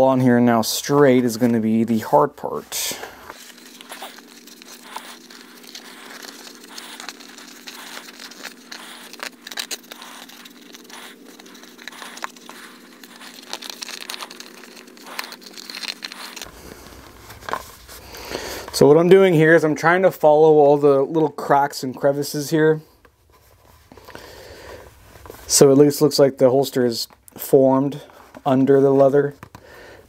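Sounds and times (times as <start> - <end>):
faint steady hum: 0.0 - 30.0
glued leather crinkling: 0.5 - 19.0.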